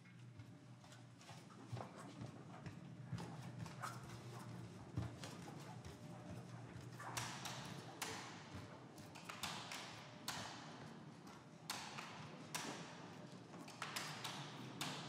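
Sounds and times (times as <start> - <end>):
footsteps on hardwood floor: 0.3 - 7.8.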